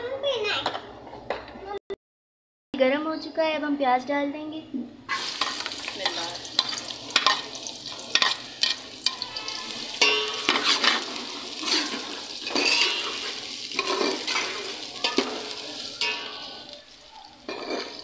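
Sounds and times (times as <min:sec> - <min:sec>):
metal ladle scraping metal pot: 0:05.1 - 0:16.7, 0:17.4 - 0:18.0
onions sizzling in hot oil: 0:05.1 - 0:18.0.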